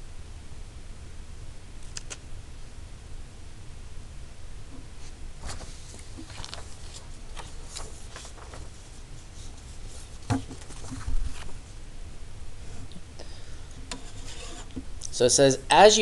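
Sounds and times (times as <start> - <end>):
small scratches and clicks: 1.8 - 2.2
paper rustling and sliding: 5.0 - 11.7.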